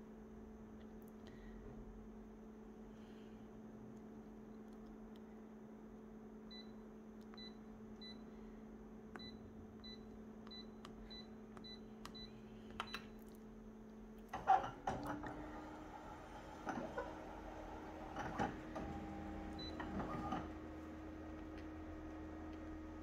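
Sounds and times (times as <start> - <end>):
copier steady hum: 5.0 - 23.0.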